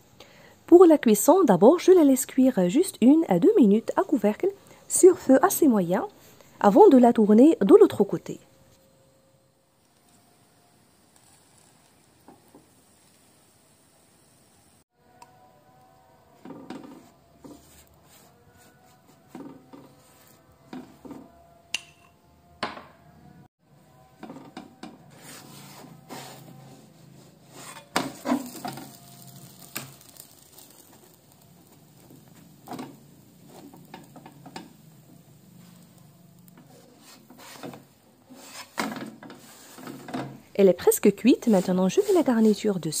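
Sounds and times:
spatula scraping frying pan: 16.4s - 21.3s, 24.2s - 43.0s.

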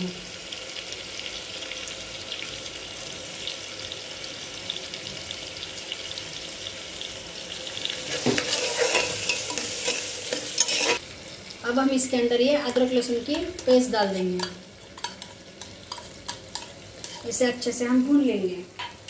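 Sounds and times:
vegetables sizzling in hot oil: 0.0s - 19.0s
spoon stirring and scraping pot: 7.8s - 11.0s, 13.4s - 17.6s, 18.8s - 19.0s.

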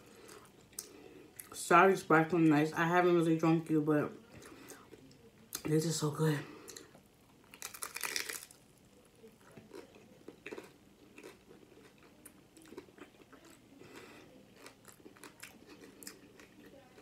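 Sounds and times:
crunchy chewing: 6.7s - 17.0s.

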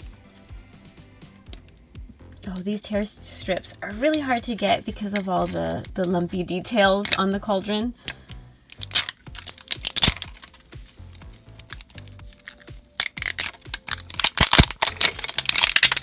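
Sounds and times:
fingernails scratching plastic wrap: 13.2s - 16.0s.

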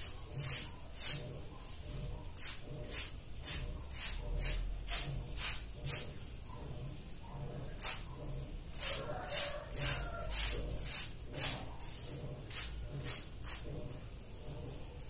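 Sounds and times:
rug scrubbed on wet concrete: 0.0s - 6.2s, 8.7s - 14.1s.

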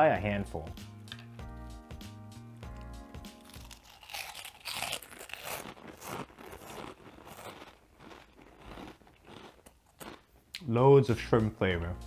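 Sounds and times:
music: 0.0s - 4.4s, 11.0s - 12.0s
crunchy crackers being chewed: 2.7s - 10.7s.

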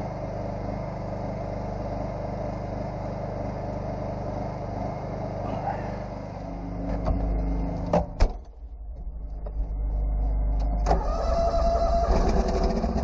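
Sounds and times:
tractor engine running: 6.8s - 13.0s.

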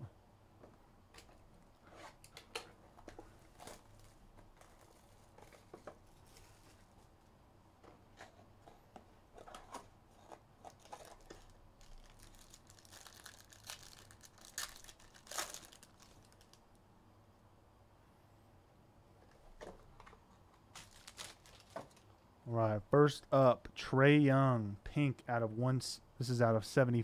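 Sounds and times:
cards and packaging clicking: 9.4s - 16.6s
plastic wrap crinkling and tearing: 10.6s - 16.6s, 20.7s - 22.1s.

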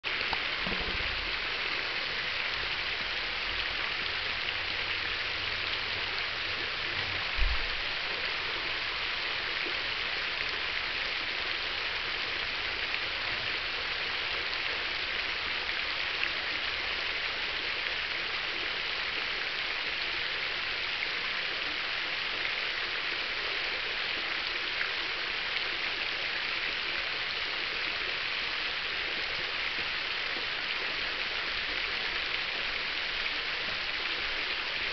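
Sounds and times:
fountain water splashing: 0.0s - 34.9s
low thump: 7.4s - 7.7s.

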